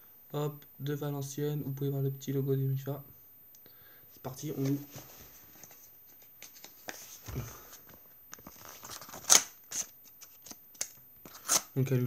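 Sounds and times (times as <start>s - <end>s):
envelope paper rustling: 4.6s - 11.7s
paper tearing: 11.3s - 11.7s.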